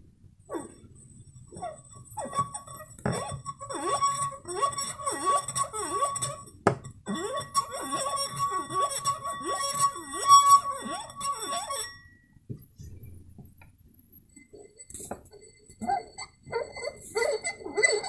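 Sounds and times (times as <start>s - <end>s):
squeaky finger rubbing on rim: 1.5s - 6.5s, 7.1s - 12.1s, 14.5s - 18.0s
tap on glass: 6.6s - 6.9s.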